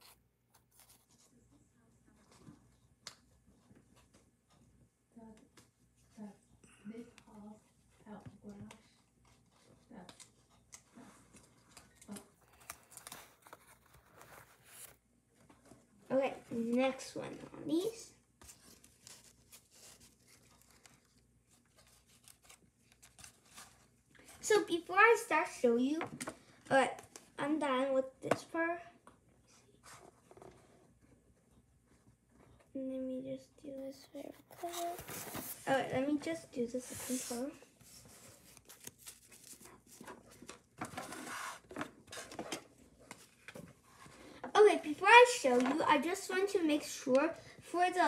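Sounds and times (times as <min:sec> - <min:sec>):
paper rustling: 0:00.0 - 0:01.4, 0:08.6 - 0:15.9, 0:18.4 - 0:24.6, 0:34.2 - 0:46.1.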